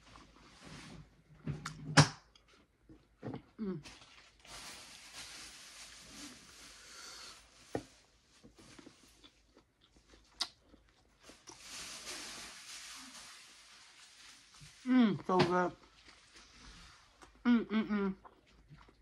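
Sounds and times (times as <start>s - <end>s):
person chewing: 8.7s - 11.6s, 15.8s - 19.0s.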